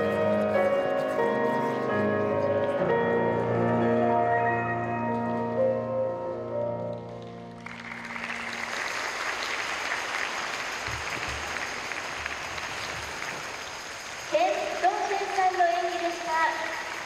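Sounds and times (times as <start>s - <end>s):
audience applause: 7.5s - 17.0s.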